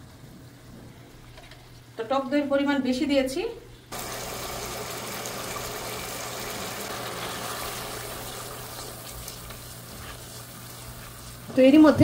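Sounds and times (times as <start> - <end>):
spices sizzling in hot oil: 3.9 - 11.9.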